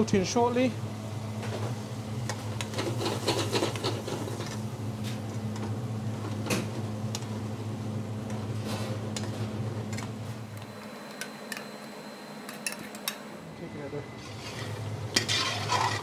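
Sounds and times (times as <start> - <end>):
steady low hum: 0.0 - 16.0
metal spoon scraping pans: 14.2 - 16.0.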